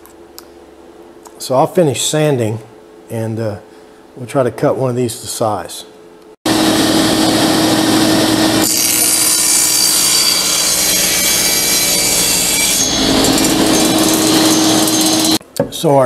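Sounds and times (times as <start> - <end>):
saw blade cutting wood: 6.5 - 15.4
table saw humming: 6.5 - 15.4.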